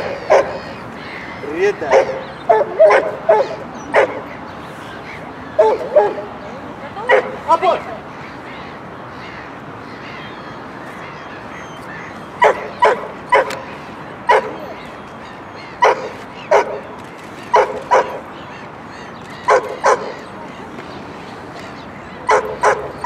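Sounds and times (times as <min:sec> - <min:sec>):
steady outdoor hiss: 0:00.0 - 0:23.0
dog barking: 0:00.2 - 0:00.6, 0:01.9 - 0:04.2, 0:05.6 - 0:06.3, 0:07.0 - 0:07.4, 0:12.4 - 0:13.6, 0:14.3 - 0:14.6, 0:15.8 - 0:16.8, 0:17.5 - 0:18.2, 0:19.5 - 0:20.1, 0:22.3 - 0:23.0.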